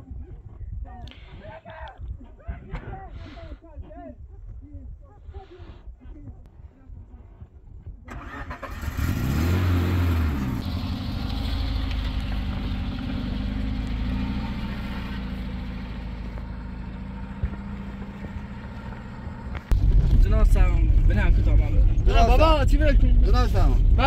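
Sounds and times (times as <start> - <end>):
vehicle engine starting and running: 8.1 - 24.0.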